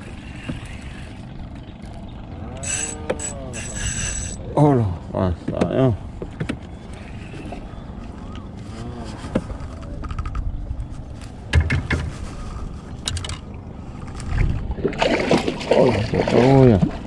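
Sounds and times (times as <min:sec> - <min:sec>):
low rumble: 0:00.0 - 0:17.0
knocks on aluminium boat: 0:11.5 - 0:12.1.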